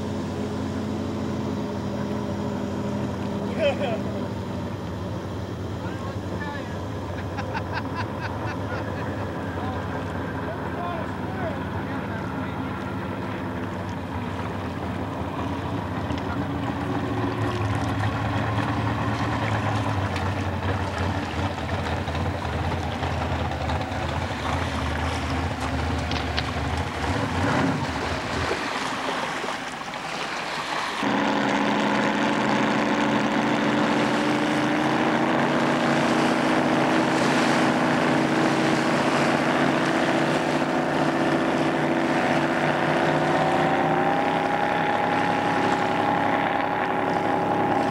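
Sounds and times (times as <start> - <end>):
outboard boat engines at speed: 0.0 - 47.9.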